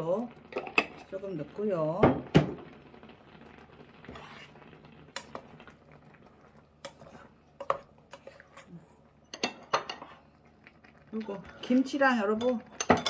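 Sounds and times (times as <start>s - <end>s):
spoon stirring soup: 3.7s - 11.8s.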